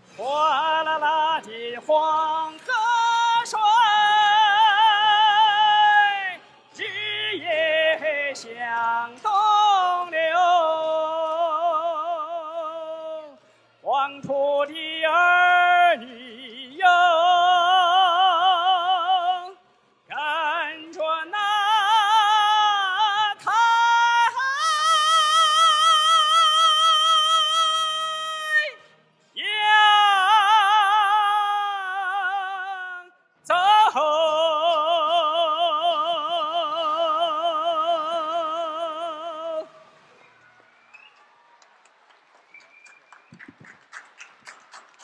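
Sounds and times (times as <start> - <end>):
man singing operatic notes: 0.1 - 39.8
man singing long high note: 29.4 - 39.8.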